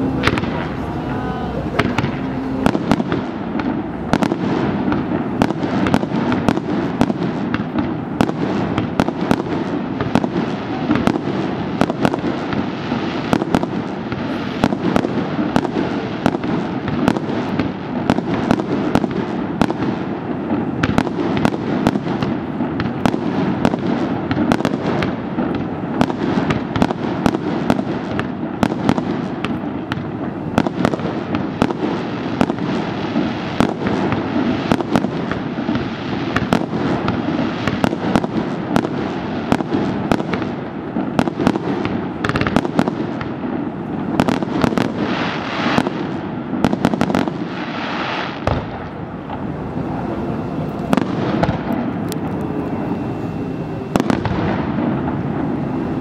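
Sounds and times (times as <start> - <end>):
steady rushing noise: 0.0 - 20.8, 47.2 - 56.0
fireworks cracking and popping: 0.0 - 56.0.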